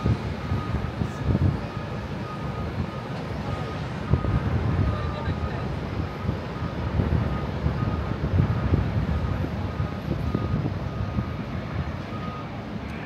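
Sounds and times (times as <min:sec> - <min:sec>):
wind gusting on microphone: 0:00.0 - 0:13.0.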